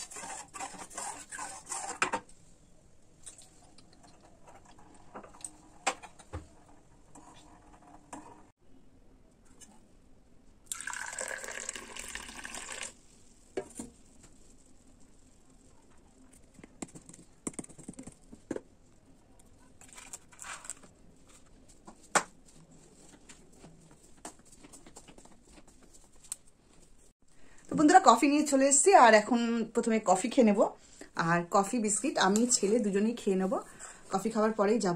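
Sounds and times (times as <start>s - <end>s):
liquid pouring into container: 10.7s - 13.1s.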